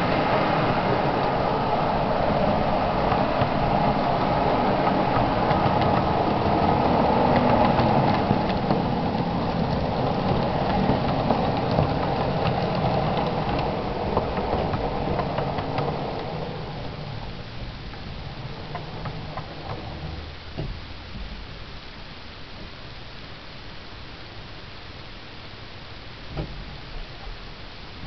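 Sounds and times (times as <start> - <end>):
model train motors whirring: 0.0 - 20.4
wheels clicking on track: 0.0 - 21.4.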